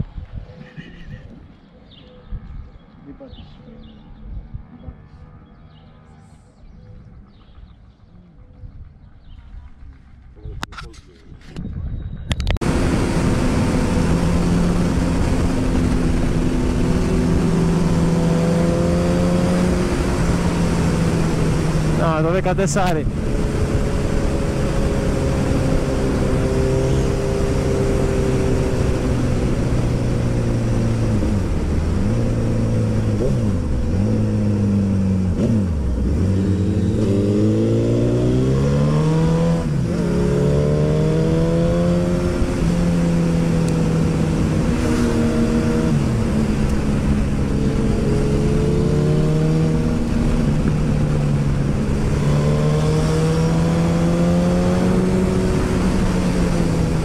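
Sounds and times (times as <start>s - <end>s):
wind rush: 0.0s - 1.6s, 11.3s - 34.5s
motorcycle engine revving: 1.9s - 57.0s.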